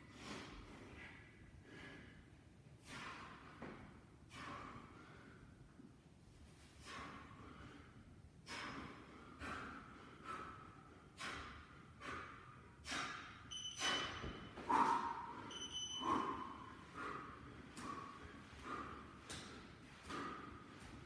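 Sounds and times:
man exhaling forcefully: 2.8s - 3.7s, 14.6s - 19.0s
short high electronic beeps: 13.5s - 14.2s, 15.5s - 16.1s.

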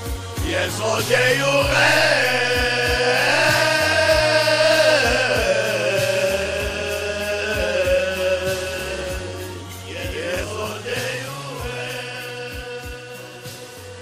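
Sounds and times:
low drum beat: 0.0s - 13.2s
backing track with bass: 0.0s - 14.0s
man singing long note: 0.7s - 9.4s.

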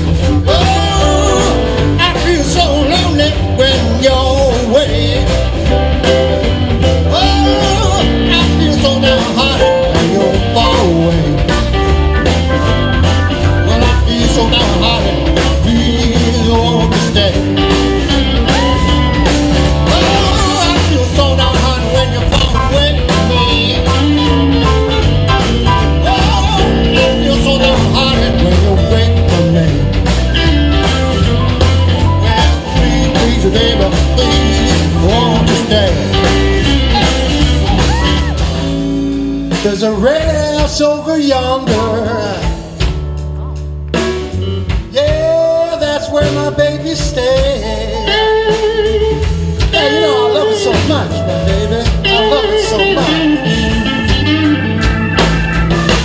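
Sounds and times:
electric guitar lead: 0.0s - 40.6s, 41.3s - 56.0s
electric blues band playing: 0.0s - 56.0s
harmonica with bending notes: 48.0s - 56.0s.

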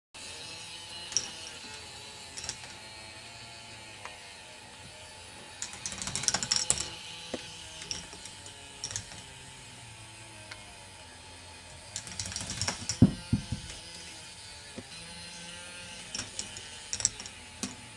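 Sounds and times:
plastic mechanism clicking and rattling: 5.6s - 7.0s, 7.8s - 9.3s, 12.0s - 13.9s, 16.1s - 17.8s.

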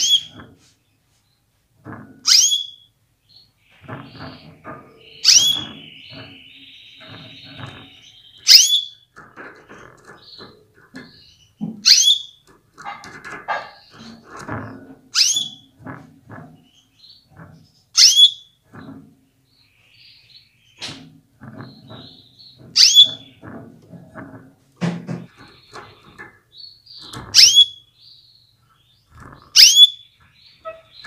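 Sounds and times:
canary calling: 0.0s - 0.4s, 2.2s - 14.5s, 15.1s - 15.7s, 18.0s - 18.6s, 20.7s - 23.6s, 25.2s - 31.0s
taps and knocks in wire cage: 1.8s - 2.5s, 3.7s - 17.8s, 18.6s - 19.3s, 20.8s - 27.6s.

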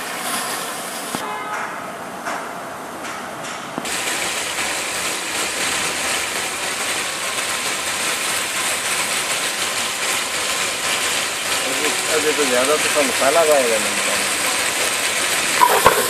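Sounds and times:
chicken sizzling in oil: 8.7s - 16.0s.

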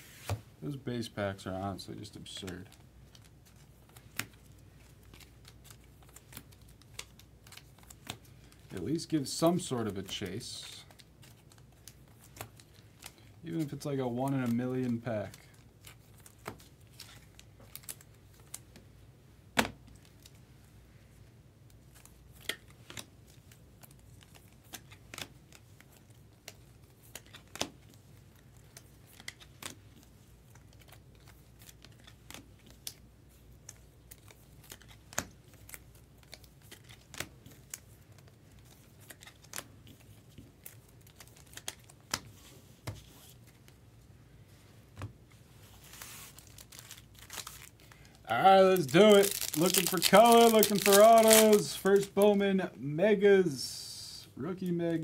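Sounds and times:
wrapper crinkling: 45.6s - 52.4s.

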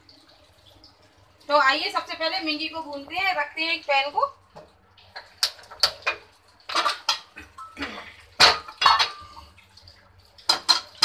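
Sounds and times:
frying pan clattering on metal grate: 5.1s - 7.7s, 8.4s - 9.4s, 10.4s - 11.0s.

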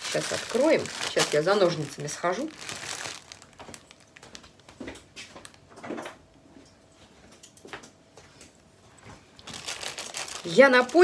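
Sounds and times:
faint footsteps: 2.5s - 5.6s.

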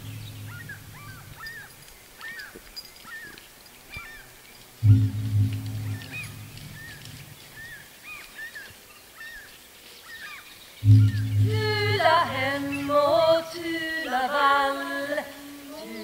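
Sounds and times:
higher wavering melody: 0.0s - 1.6s, 4.8s - 7.4s, 10.8s - 13.7s
low steady drone: 0.0s - 1.7s, 4.8s - 7.7s, 10.8s - 13.7s.

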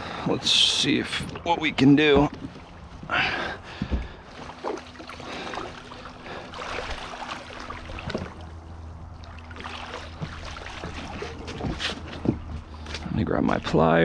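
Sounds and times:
shallow water sloshing and splashing: 1.1s - 13.0s
dull knocks: 3.7s - 4.2s.

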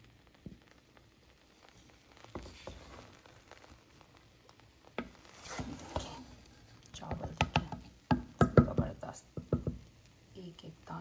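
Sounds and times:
spatula tapping and scraping pot: 1.6s - 3.6s, 4.9s - 9.9s.

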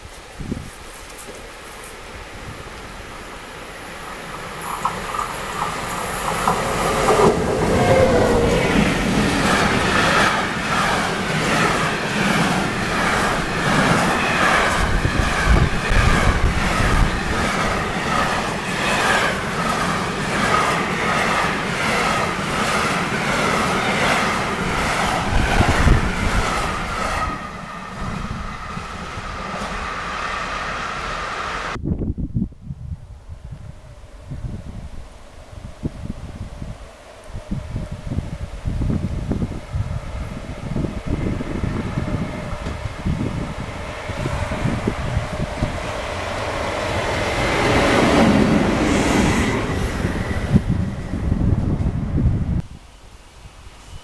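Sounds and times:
freight train passing: 0.0s - 32.1s, 32.8s - 54.0s
wheels clickety-clack on rail joints: 4.2s - 31.8s, 40.8s - 52.3s.

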